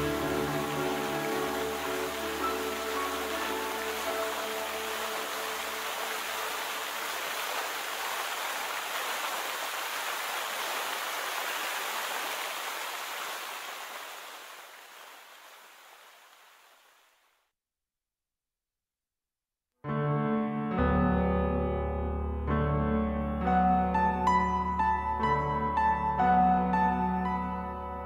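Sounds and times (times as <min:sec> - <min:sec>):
fountain water splashing: 0:00.0 - 0:17.3.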